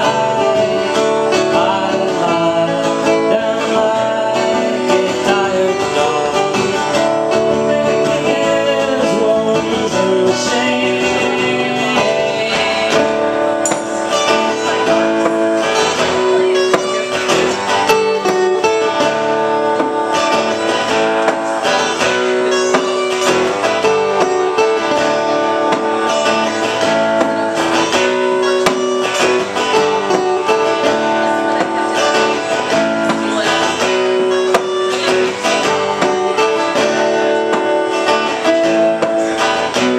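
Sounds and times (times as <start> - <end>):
acoustic guitars strummed: 0.0 - 39.9.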